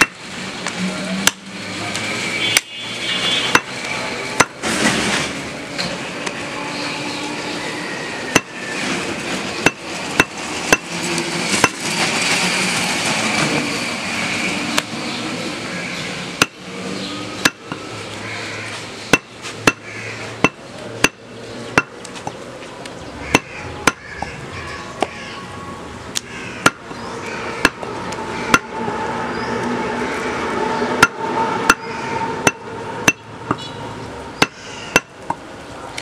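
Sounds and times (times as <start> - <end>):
cleaver chopping meat on wood: 8.3 - 8.5, 19.1 - 21.2, 23.3 - 24.0.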